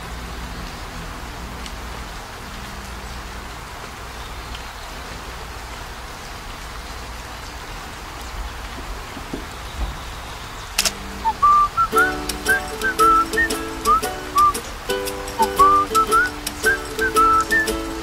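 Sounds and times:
steady rain falling: 0.0s - 18.0s
soft knocks: 8.7s - 10.1s.

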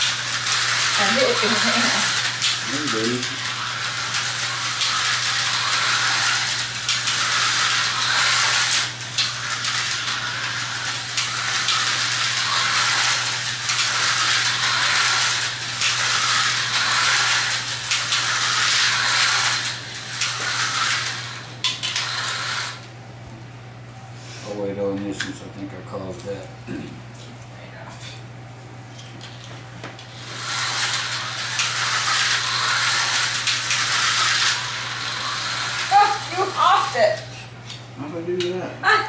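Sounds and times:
slot car motors whining: 0.0s - 22.9s, 30.0s - 37.5s.

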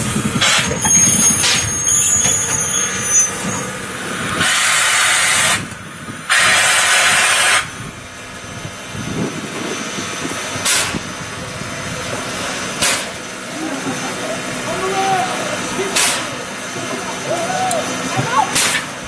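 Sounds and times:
high squeal: 0.0s - 5.6s, 6.3s - 18.6s
low train rumble: 0.0s - 19.0s
steam hissing: 4.2s - 7.8s, 9.1s - 19.0s.

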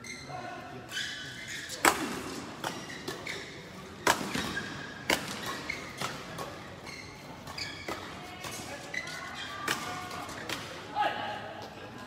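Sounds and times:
rackets hitting shuttlecock: 1.7s - 6.6s, 7.4s - 10.8s.

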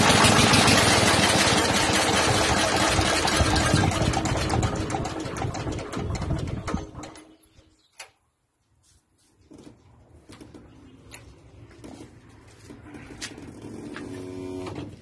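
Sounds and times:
diesel engine clatter shutting down: 0.0s - 7.3s.

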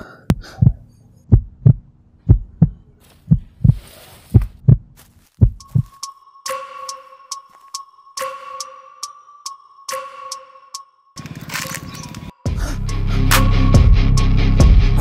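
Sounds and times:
heartbeat thumps: 0.3s - 6.0s.

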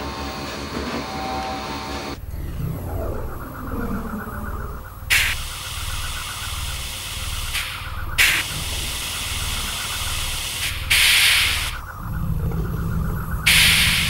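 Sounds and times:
low pulsing mechanical drone: 0.0s - 14.0s
sharp bursts of hissing: 5.0s - 14.0s.

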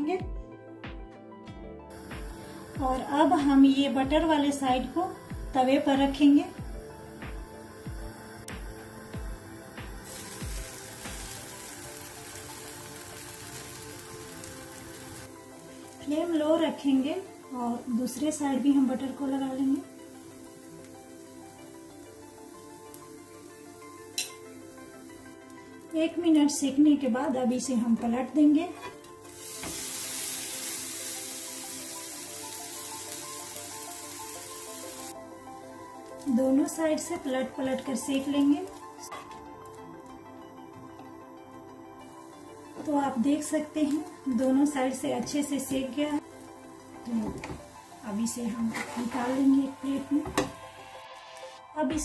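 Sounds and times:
background music with beat: 0.0s - 4.3s, 5.2s - 12.2s, 49.6s - 52.0s
background music: 0.0s - 52.0s
bread sizzling in frying pan: 1.9s - 26.6s, 28.8s - 40.3s, 42.0s - 51.3s.

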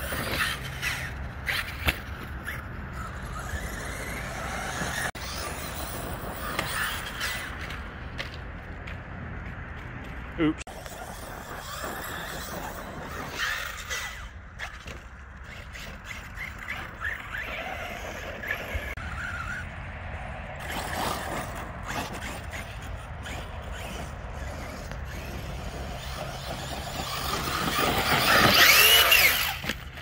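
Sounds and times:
tyres scrabbling on dirt: 0.0s - 30.0s
electric motor whines: 23.6s - 30.0s.

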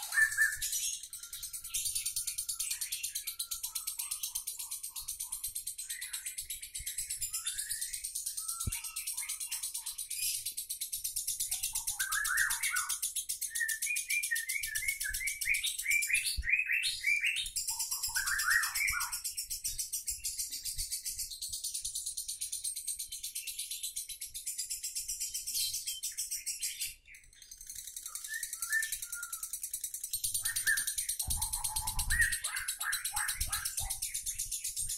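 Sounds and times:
bird chattering trill: 0.0s - 1.6s, 27.6s - 34.7s
rising bird chirps: 0.0s - 4.2s.

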